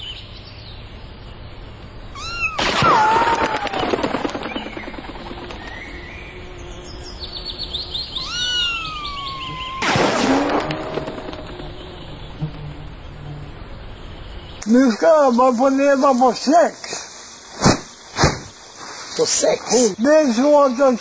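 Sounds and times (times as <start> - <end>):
birds chirping: 0.0 - 21.0
imitation gunshots with ricochet whine: 2.5 - 5.6, 9.7 - 11.5.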